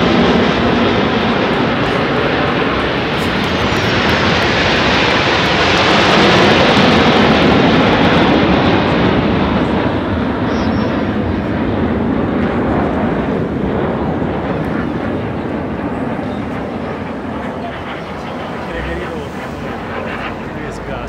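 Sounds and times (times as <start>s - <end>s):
jet aircraft roar overhead: 0.0s - 21.0s.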